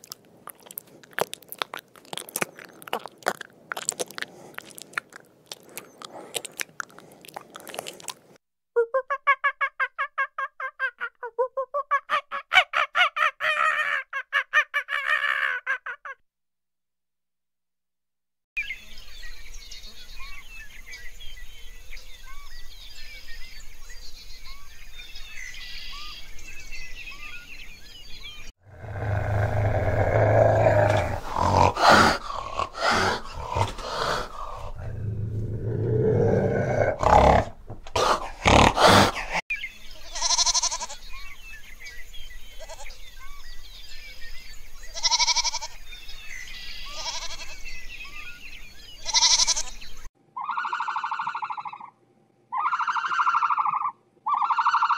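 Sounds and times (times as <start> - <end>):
birds chirping: 18.6 - 50.1
long low animal call: 28.7 - 39.4, 52.5 - 54.9
short higher animal calls: 52.5 - 54.9.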